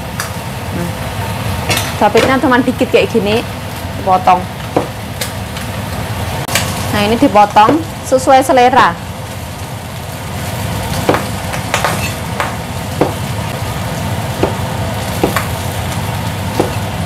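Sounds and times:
food sizzling in hot pan: 0:00.0 - 0:17.0
knife chopping on cutting board: 0:11.0 - 0:13.2, 0:14.4 - 0:15.6, 0:16.6 - 0:16.9.

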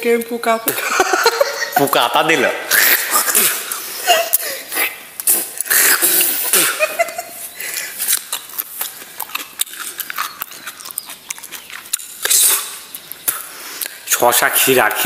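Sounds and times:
wet mouth clicks: 0:02.7 - 0:06.8, 0:07.6 - 0:14.1
cucumber chewing crunches: 0:07.4 - 0:14.2.

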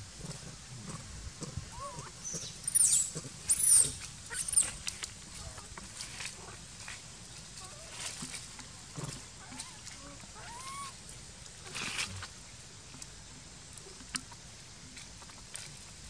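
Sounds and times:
faint rustles: 0:00.2 - 0:10.6, 0:11.6 - 0:13.0
baby monkey shrill squeals: 0:02.2 - 0:04.8, 0:10.4 - 0:11.0.

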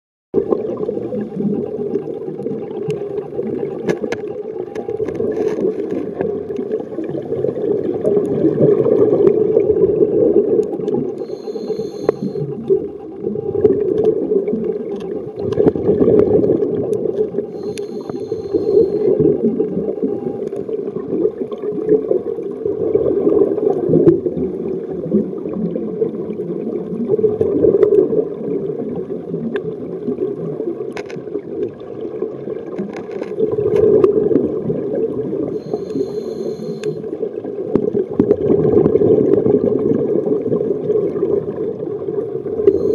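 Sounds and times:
underwater rumble of moving water: 0:00.4 - 0:42.9
faint clicks: 0:01.9 - 0:06.8, 0:10.5 - 0:15.8, 0:16.6 - 0:20.7, 0:35.8 - 0:37.1.

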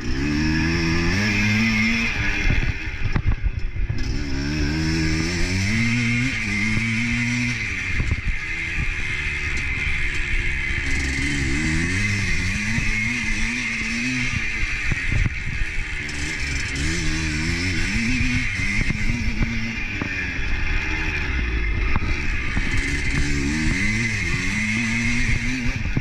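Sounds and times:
vehicle engine speeding up and slowing: 0:00.0 - 0:26.0.

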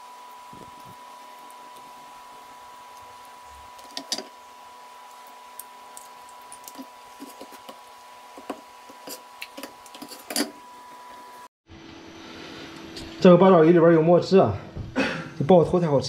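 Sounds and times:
faint high whine: 0:00.0 - 0:06.9
steady hum: 0:00.0 - 0:16.0.

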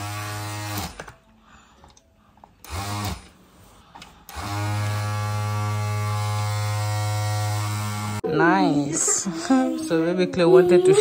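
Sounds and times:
electric buzzer: 0:00.0 - 0:01.2, 0:02.6 - 0:03.4, 0:04.3 - 0:08.2.

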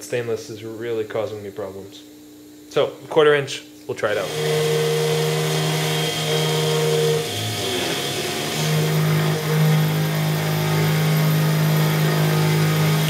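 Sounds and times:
milling machine spindle humming: 0:04.2 - 0:13.0.

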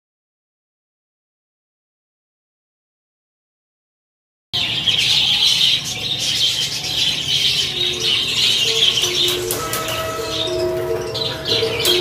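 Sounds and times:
budgerigars chattering: 0:04.6 - 0:12.0.

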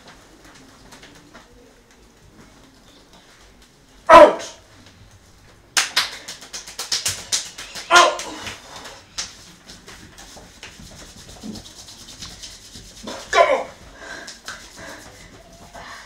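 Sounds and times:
rapid sharp smacks: 0:05.8 - 0:13.5.

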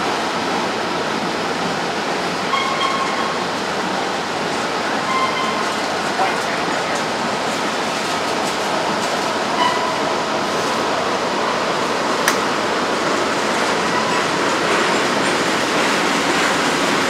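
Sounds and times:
steel wheels rolling on rail: 0:00.0 - 0:17.0
sharp click: 0:12.2 - 0:12.4.

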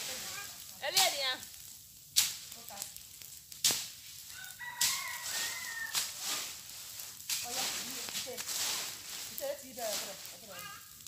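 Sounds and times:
burning brush cracking: 0:00.0 - 0:11.0
rooster crowing: 0:04.3 - 0:06.2.

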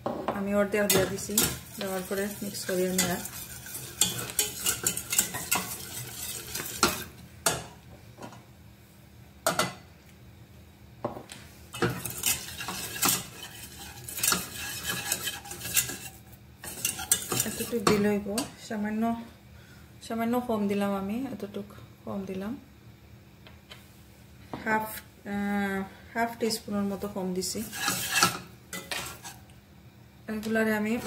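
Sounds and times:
whisk scraping a saucepan: 0:00.8 - 0:07.2, 0:11.7 - 0:18.0, 0:27.4 - 0:29.5.

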